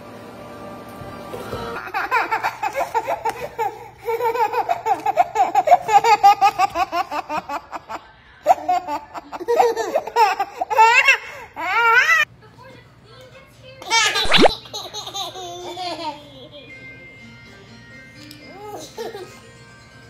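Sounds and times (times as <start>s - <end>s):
baby laughing: 1.8s - 12.2s, 13.9s - 16.5s, 18.6s - 19.4s.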